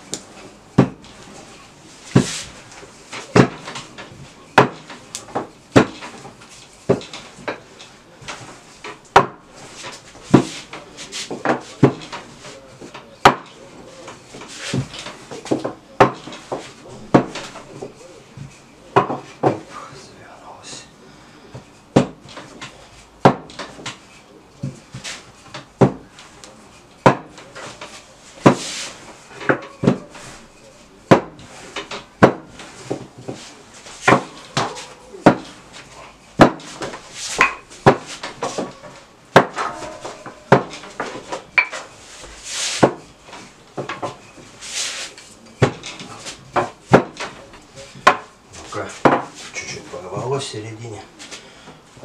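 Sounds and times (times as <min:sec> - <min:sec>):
rolling pin rubbing on dough: 0:01.0 - 0:07.5, 0:09.5 - 0:13.0, 0:13.7 - 0:20.9, 0:22.0 - 0:50.4
rolling pin knocking on table: 0:04.6 - 0:06.2, 0:14.7 - 0:17.6, 0:22.0 - 0:24.0, 0:25.6 - 0:26.1, 0:39.3 - 0:41.8.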